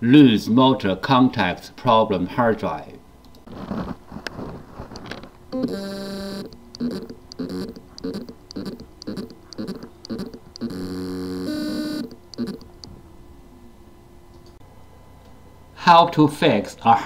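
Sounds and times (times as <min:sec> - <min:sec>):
hard drive motor buzzing: 0:05.0 - 0:13.0.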